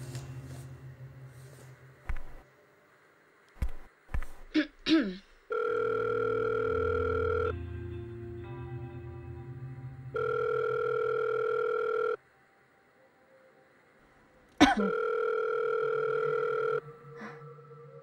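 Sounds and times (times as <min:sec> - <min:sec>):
electronic telephone ringing: 0:05.5 - 0:07.6, 0:10.2 - 0:12.2, 0:14.8 - 0:16.8.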